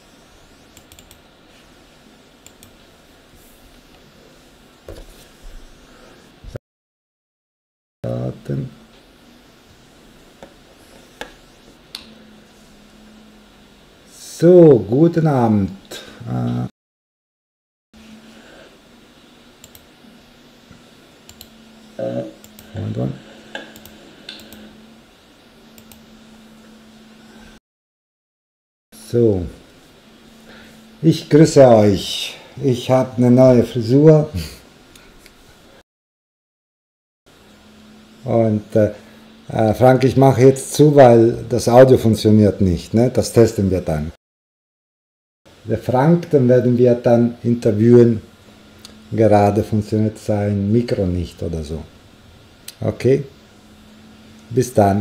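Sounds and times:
low electrical hum: 0:00.0 - 0:06.6, 0:08.0 - 0:16.7, 0:18.0 - 0:27.6, 0:29.0 - 0:35.8, 0:37.3 - 0:44.2, 0:45.5 - 0:55.0
keyboard clicks: 0:00.7 - 0:01.2
man vocal sounds: 0:15.9 - 0:16.7, 0:31.0 - 0:34.6.

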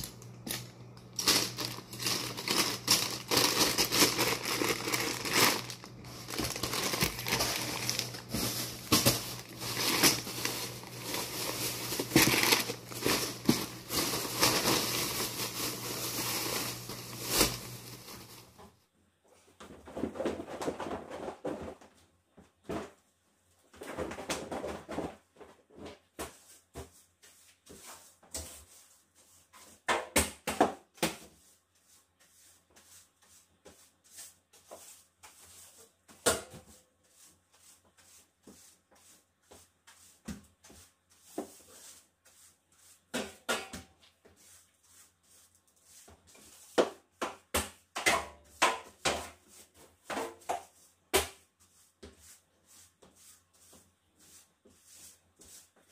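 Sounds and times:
broom sweeping wooden floor: 0:00.5 - 0:18.7, 0:25.9 - 0:29.9, 0:30.8 - 0:55.9
rug rustling: 0:01.2 - 0:18.6.

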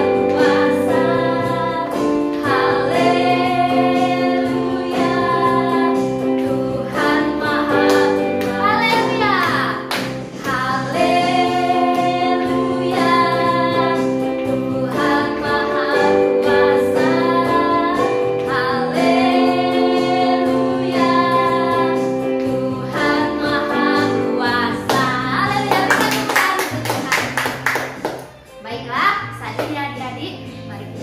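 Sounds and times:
electronic keyboard: 0:00.0 - 0:27.4
women singing: 0:00.0 - 0:27.6
hand claps: 0:07.8 - 0:10.6, 0:24.9 - 0:28.4.

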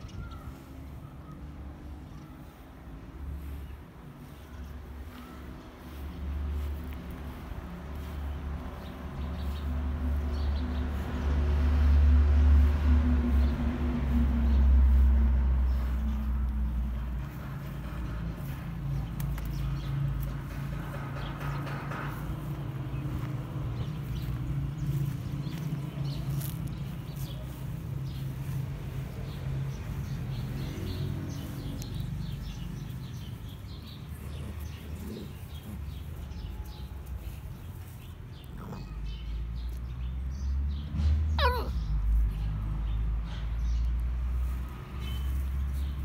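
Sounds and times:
puppy squealing: 0:41.4 - 0:41.8.

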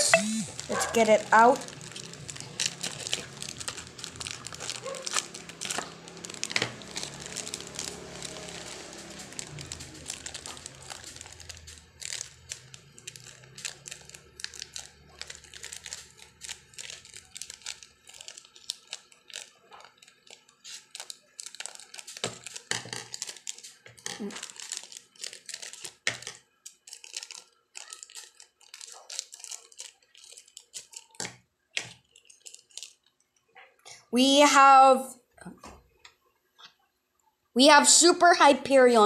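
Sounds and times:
plastic bags crinkling: 0:00.0 - 0:33.2.

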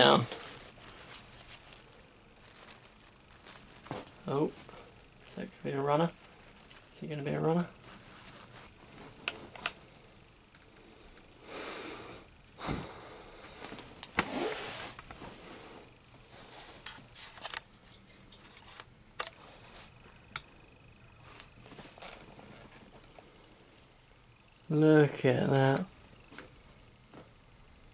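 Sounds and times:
short rustles: 0:00.0 - 0:10.0, 0:12.6 - 0:18.8.

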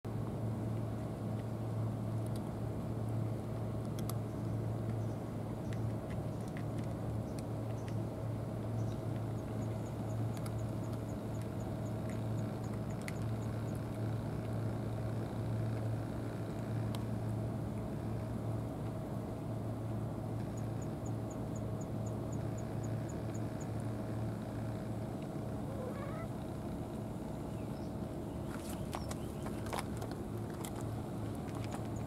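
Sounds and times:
low mechanical hum: 0:00.1 - 0:32.0
scattered clicks: 0:02.2 - 0:02.5, 0:03.6 - 0:04.2, 0:08.9 - 0:14.6.

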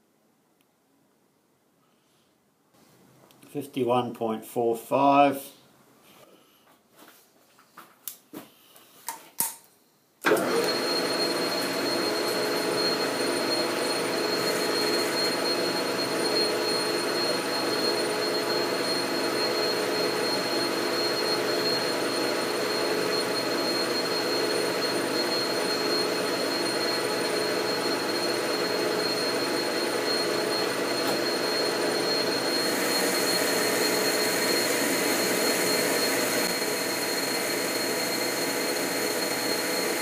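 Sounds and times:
metal lathe running with whine: 0:10.3 - 0:40.0.

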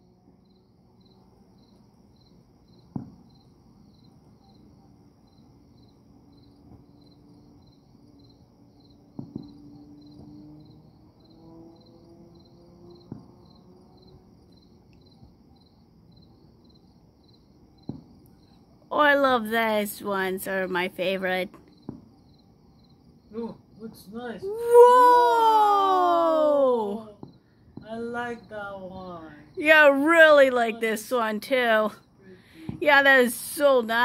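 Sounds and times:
crickets chirping: 0:00.0 - 0:34.0
distant fireworks bangs: 0:02.8 - 0:03.4, 0:09.0 - 0:10.9, 0:12.9 - 0:13.6, 0:17.8 - 0:18.3, 0:21.5 - 0:22.2, 0:32.6 - 0:33.8.

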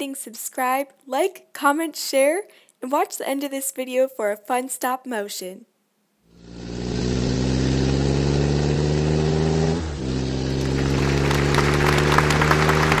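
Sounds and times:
car engine running: 0:06.3 - 0:13.0.

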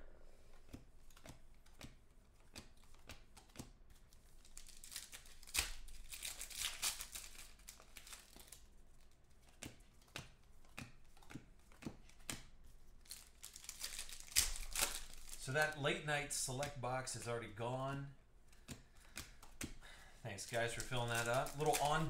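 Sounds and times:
foil wrappers crinkling and tearing: 0:04.0 - 0:09.6, 0:12.8 - 0:15.9, 0:20.3 - 0:22.0.

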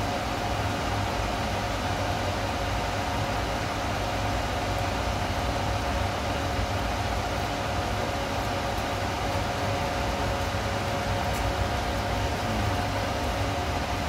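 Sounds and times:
machine electrical hum and fan hiss: 0:00.0 - 0:14.0
constant droning tone: 0:04.3 - 0:14.0.

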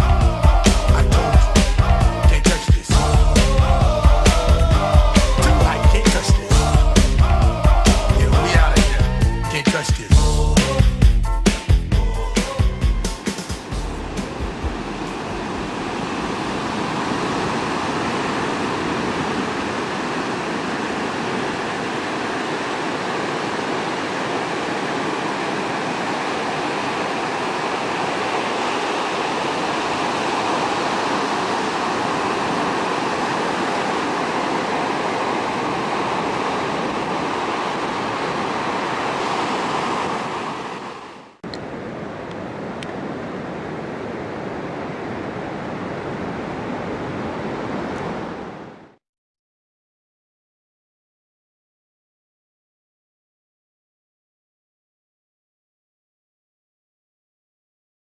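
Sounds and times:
ocean surf breaking: 0:00.0 - 0:10.2, 0:13.1 - 0:49.0.

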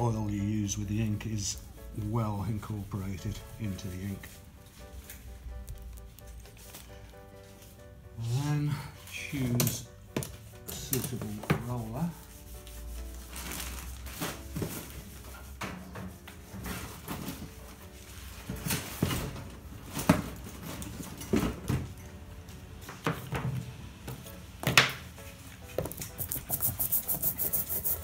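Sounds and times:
tools clattering in plastic crate: 0:18.5 - 0:22.0.

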